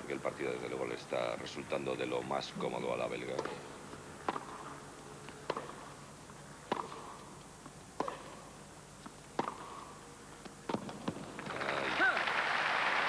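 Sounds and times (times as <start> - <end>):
faint crowd hum: 0.0 - 13.0
racquet hitting tennis ball: 2.8 - 11.6.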